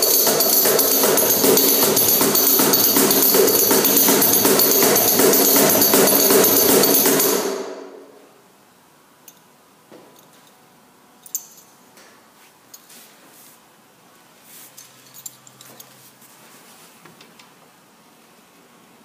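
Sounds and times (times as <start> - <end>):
cajon slaps with metallic jingling: 0.0 - 7.5
small metallic clink: 11.2 - 11.8, 14.8 - 15.9.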